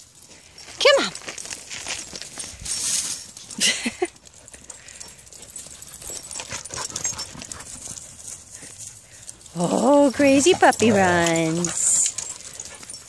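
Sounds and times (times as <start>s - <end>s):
footsteps on trail: 0.1s - 3.6s
dog paws pattering: 0.2s - 13.0s.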